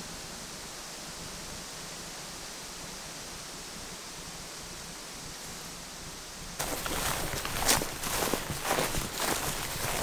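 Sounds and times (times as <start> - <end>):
footsteps: 6.6 - 10.0.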